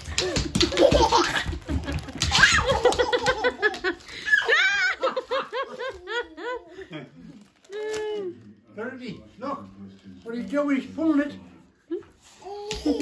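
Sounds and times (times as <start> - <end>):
person laughing: 0.2 - 7.0
wrapping paper crinkling: 1.6 - 6.6, 7.2 - 8.6.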